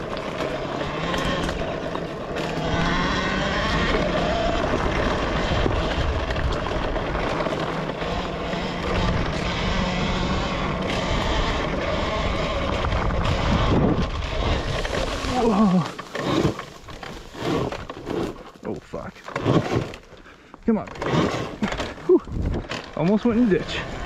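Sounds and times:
electric motor whine: 0.0s - 18.4s.

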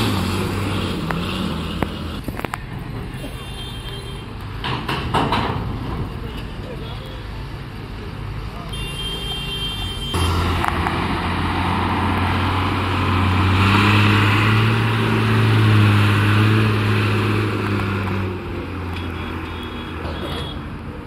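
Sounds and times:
truck diesel engine pulling hard: 0.0s - 3.3s, 10.1s - 21.0s.

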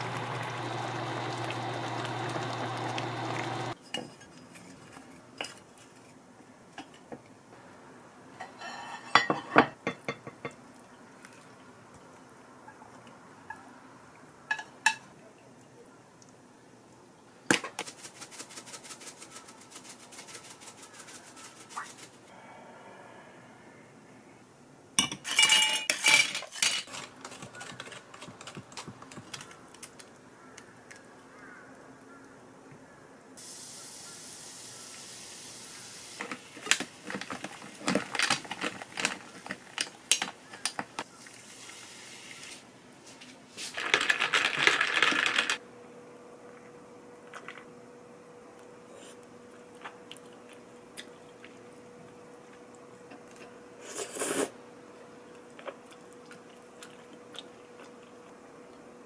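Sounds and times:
sparkling water fizzing: 0.0s - 3.7s, 33.4s - 37.9s, 41.2s - 42.7s
ice cracking and clinking: 36.2s - 40.9s, 43.8s - 45.6s.

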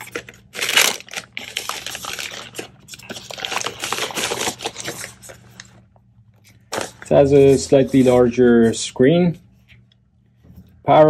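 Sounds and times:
plastic wrapping crinkling: 0.0s - 5.8s
faint steady hum: 0.0s - 11.0s.

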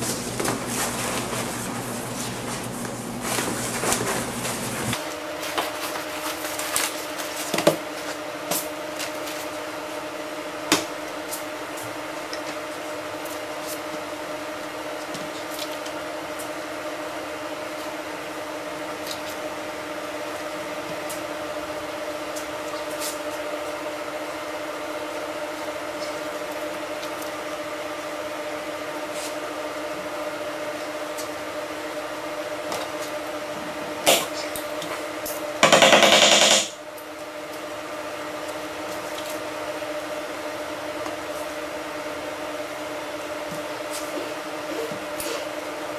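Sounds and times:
machine hum: 0.0s - 5.2s, 31.5s - 37.0s.

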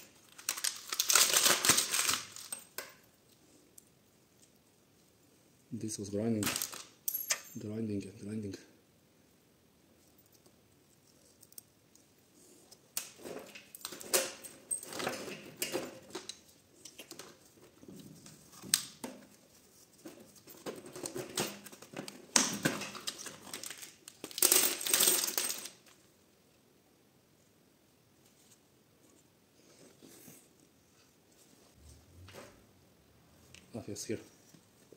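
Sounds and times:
metal parts clinking and rattling: 6.4s - 7.6s, 13.1s - 17.1s, 20.6s - 25.9s.

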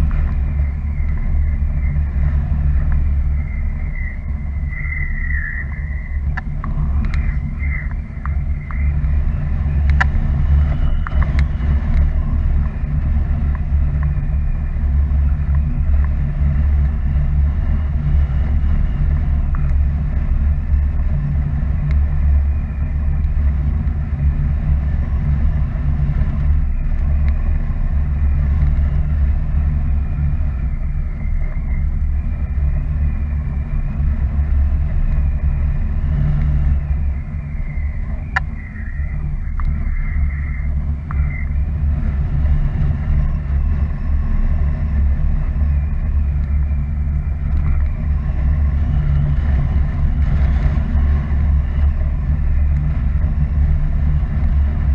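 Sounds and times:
wind rushing over microphone: 0.0s - 54.9s
faint clicks: 3.9s - 9.2s, 19.4s - 19.8s, 37.8s - 40.4s, 47.4s - 48.2s.

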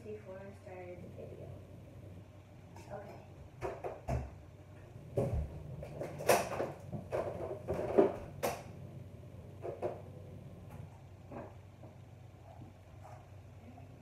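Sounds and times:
cupboard doors knocking and clunking: 3.5s - 4.4s.

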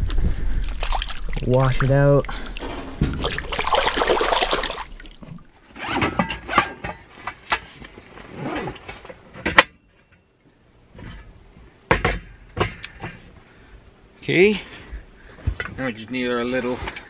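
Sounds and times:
water splashing: 0.0s - 5.5s.

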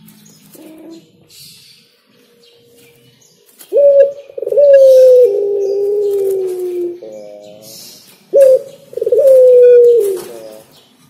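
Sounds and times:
dove cooing: 0.5s - 1.4s, 3.6s - 10.8s.

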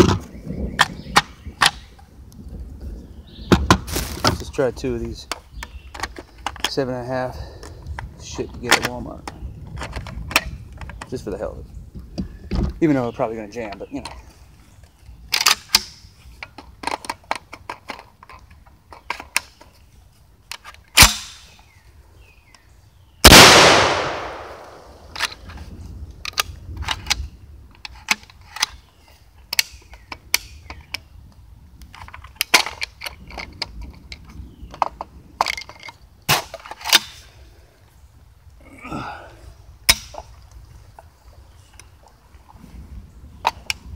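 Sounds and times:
shotgun shots echoing: 23.2s - 25.2s
shotgun action clicking: 23.2s - 25.4s.

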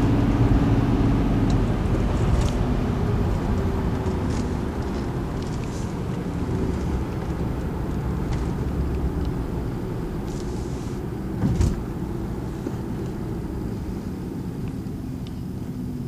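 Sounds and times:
car engine and tyre rumble: 0.0s - 16.0s
brief thump: 11.4s - 11.8s.

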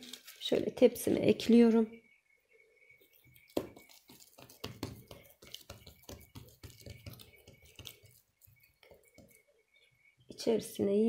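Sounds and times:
fingers patting dough: 3.2s - 9.5s.

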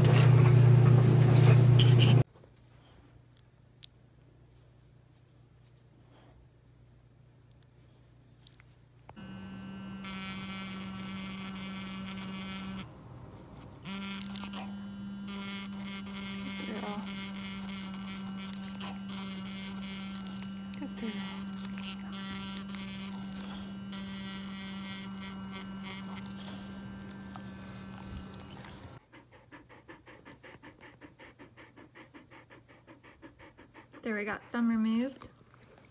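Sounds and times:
ultrasonic plaque remover buzzing: 9.1s - 29.0s.

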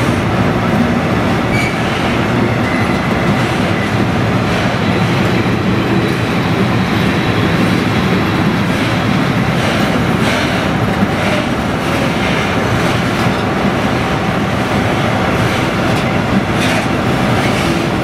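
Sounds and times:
train wheels rumbling on rail: 0.0s - 18.0s
clacks over rail joints: 8.6s - 13.6s, 14.7s - 18.0s.

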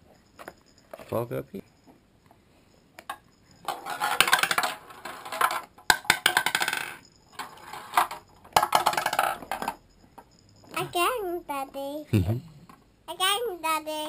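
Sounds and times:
plastic ball rattling down ramps: 3.6s - 9.8s.

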